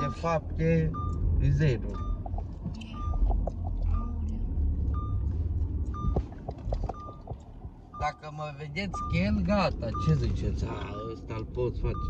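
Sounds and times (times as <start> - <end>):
engine and road rumble: 0.0 - 12.0
short electronic car beep: 1.8 - 3.3, 6.9 - 7.3.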